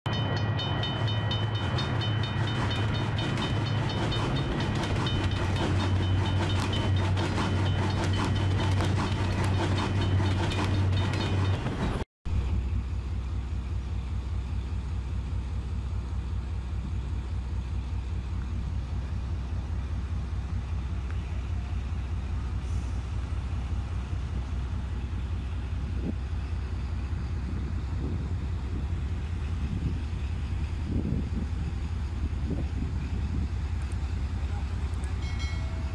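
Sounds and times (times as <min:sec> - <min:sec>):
freight train rumbling past: 0:00.1 - 0:35.9
train sound effect with clicking: 0:00.1 - 0:35.9.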